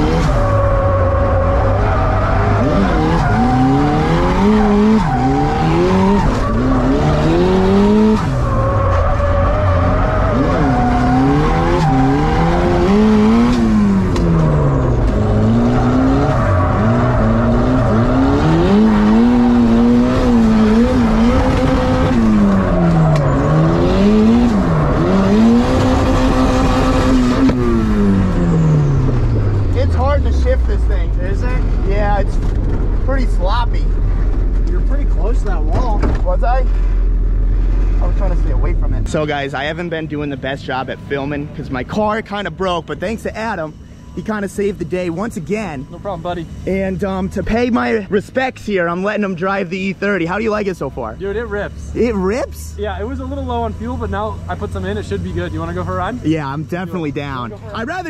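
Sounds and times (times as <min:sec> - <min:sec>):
tyres squealing: 0:00.0 - 0:30.5
car engine revving: 0:00.0 - 0:58.0.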